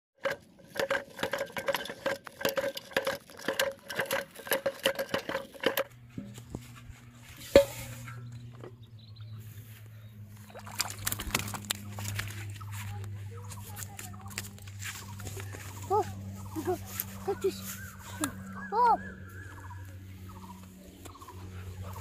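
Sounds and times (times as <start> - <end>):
low steady hum: 0.2 - 22.0
fish splashing in water: 10.4 - 12.3.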